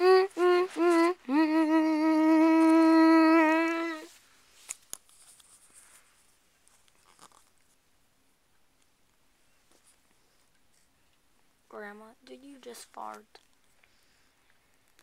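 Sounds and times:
person humming: 0.0s - 4.1s.

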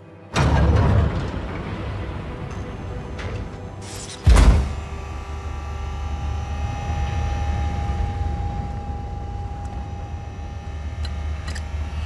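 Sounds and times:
machinery-like drone: 1.2s - 12.0s
low rumble: 4.3s - 12.0s.

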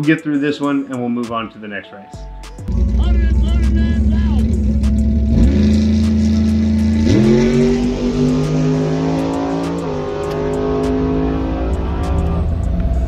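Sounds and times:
car engine revving hard: 2.7s - 13.0s.

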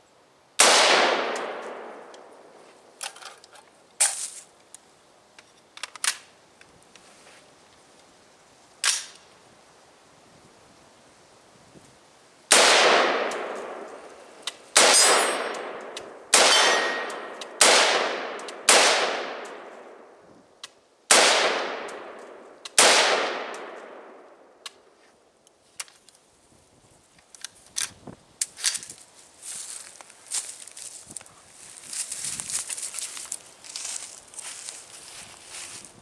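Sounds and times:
rifle shots echoing: 0.6s - 2.4s, 12.5s - 20.0s, 21.1s - 24.3s
faint clicks and rustles: 27.0s - 36.0s.

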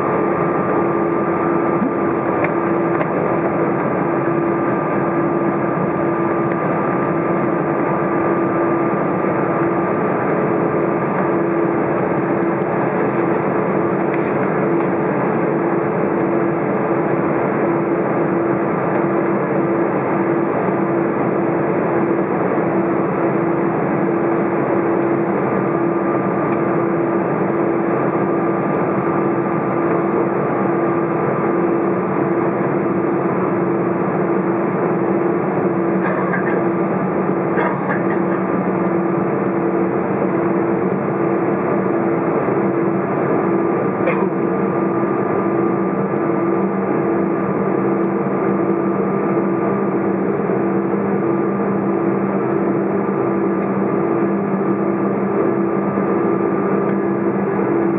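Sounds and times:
low pulsing tone: 0.0s - 2.9s
aircraft cabin engine hum and rush: 0.0s - 57.9s
thin steady whine: 0.0s - 57.9s.

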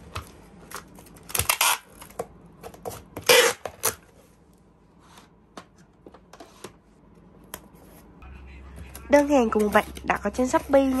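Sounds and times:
packing tape screeching off dispenser: 1.3s - 2.1s, 3.2s - 4.0s.

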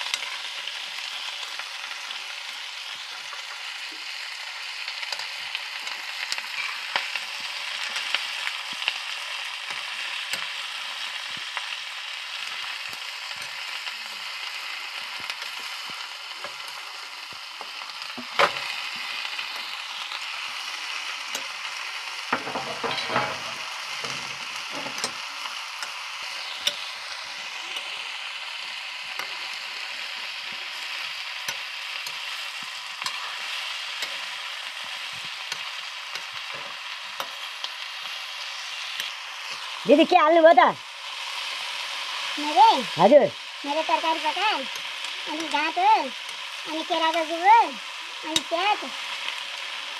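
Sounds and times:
food sizzling in oil: 0.0s - 49.9s
metal ladle scraping pan: 22.3s - 25.2s
sharp metal clank: 22.4s - 25.2s.

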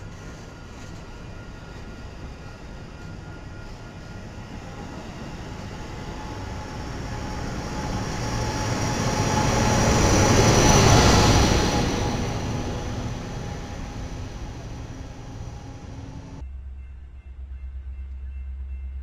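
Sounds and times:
train coaches running over rails: 0.0s - 16.4s
diesel locomotive high whine: 0.0s - 19.0s.

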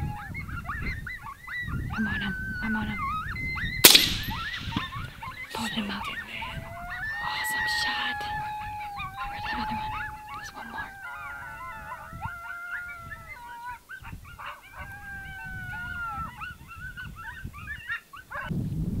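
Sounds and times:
coyotes howling and yipping: 0.0s - 18.5s.

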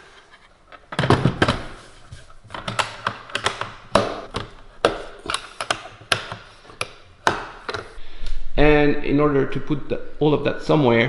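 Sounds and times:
case latches clicking and knocking: 2.5s - 8.0s.

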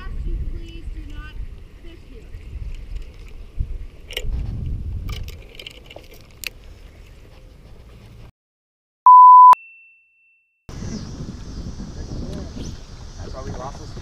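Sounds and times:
low wind rumble: 0.0s - 5.9s, 10.7s - 14.0s
censor bleep: 9.1s - 9.7s
faint higher tone: 9.1s - 10.6s.

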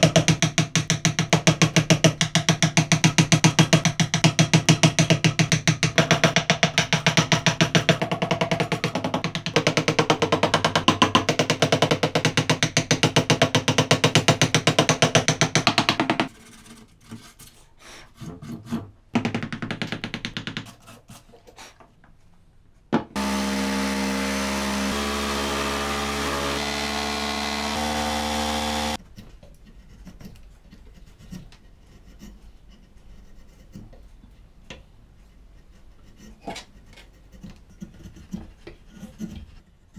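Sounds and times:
loud pitched hum with stepping tones: 23.2s - 29.0s.

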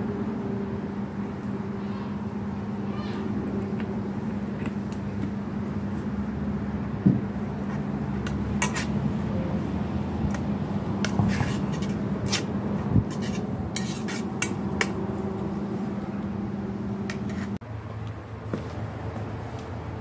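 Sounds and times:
metal utensil scraping frying pan: 7.6s - 9.0s, 11.0s - 15.0s, 17.1s - 17.6s.

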